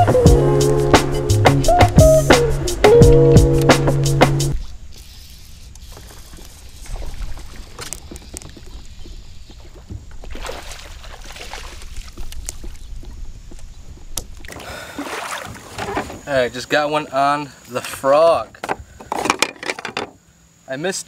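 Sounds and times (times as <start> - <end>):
water splashing and sloshing: 3.1 - 16.6.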